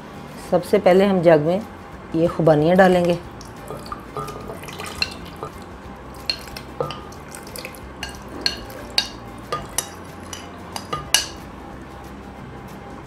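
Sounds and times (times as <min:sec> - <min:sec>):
soft wet splashes: 0:02.9 - 0:11.4
clinks and taps on glass: 0:03.4 - 0:11.4.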